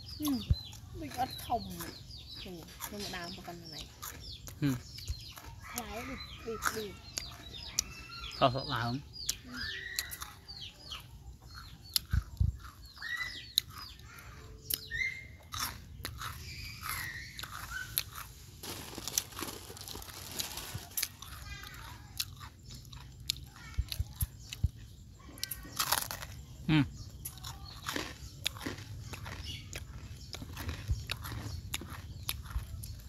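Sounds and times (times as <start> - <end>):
cat crunching food: 25.3 - 26.4, 27.2 - 33.0.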